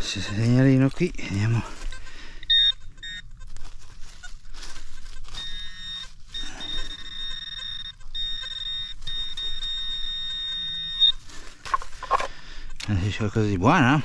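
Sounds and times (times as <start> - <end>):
metal detector tone: 2.4 - 3.3, 5.3 - 12.3.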